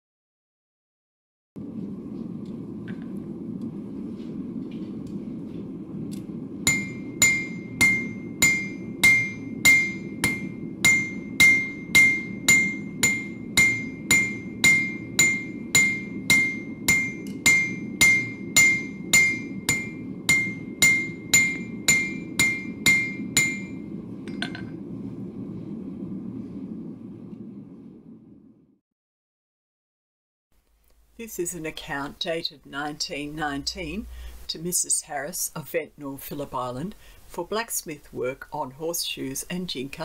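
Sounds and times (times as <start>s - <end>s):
forge noise: 1.6s - 28.7s, 30.9s - 35.4s
hammer ringing on anvil: 6.7s - 24.7s.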